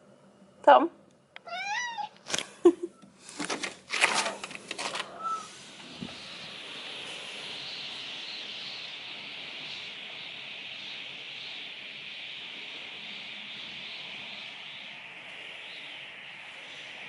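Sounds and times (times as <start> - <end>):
cat meowing: 1.4 - 2.2
outdoor hiss: 1.4 - 17.0.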